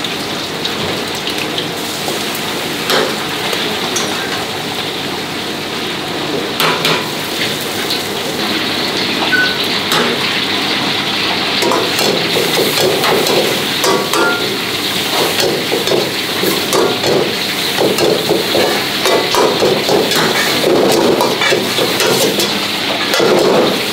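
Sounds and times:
meat sizzling in a wok: 0.0 - 23.9
metal ladle knocking on wok: 9.4 - 10.4, 11.6 - 23.9.

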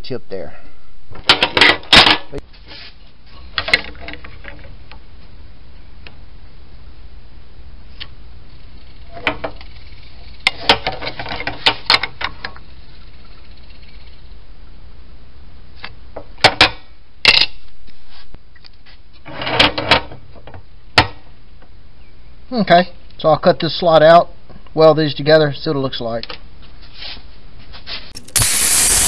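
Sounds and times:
low shop hum: 28.2 - 29.0.

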